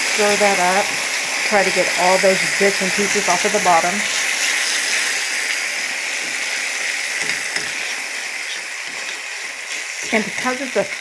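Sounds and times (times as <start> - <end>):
gravy sizzling in a skillet: 0.0 - 11.0
metal spoon scraping a pan: 2.7 - 5.6, 7.1 - 10.5.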